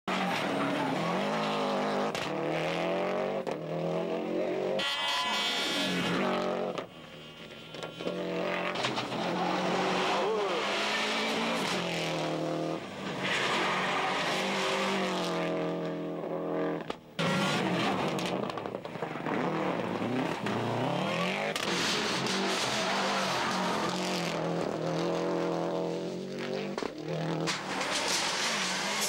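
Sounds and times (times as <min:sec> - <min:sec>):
rally car engines racing past: 0:07.5 - 0:29.0.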